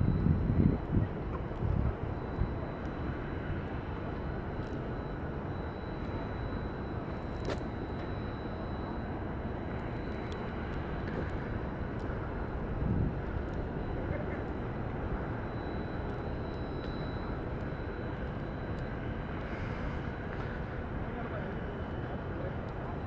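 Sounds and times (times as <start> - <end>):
low rumble of city traffic: 0.0 - 23.0
faint high-pitched tone: 2.1 - 12.0.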